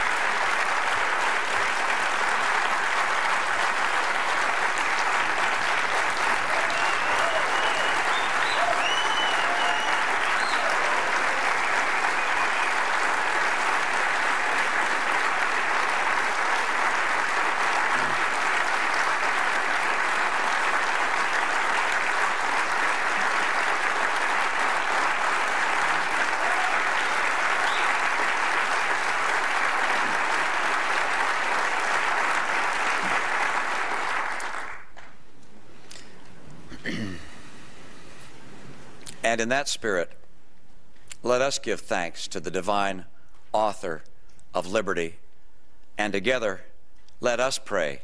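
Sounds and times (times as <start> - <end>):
large audience applauding: 0.0 - 35.2.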